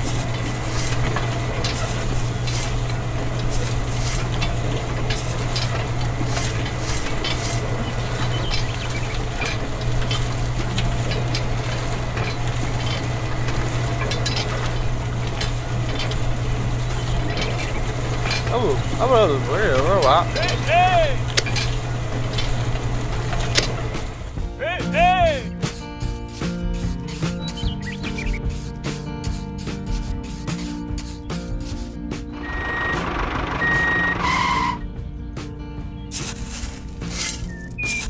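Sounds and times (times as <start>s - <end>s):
grains rattling on wire sieve: 0.0s - 24.3s, 36.1s - 38.0s
toy gear motors humming: 0.0s - 24.4s, 31.8s - 34.8s.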